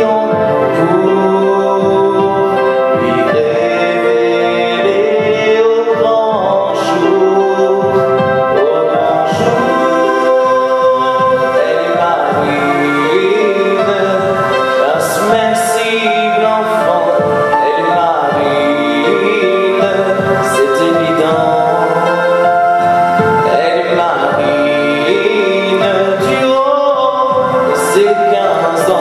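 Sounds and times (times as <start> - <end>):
instrumental chords: 0.0 - 29.0
man singing: 0.0 - 29.0.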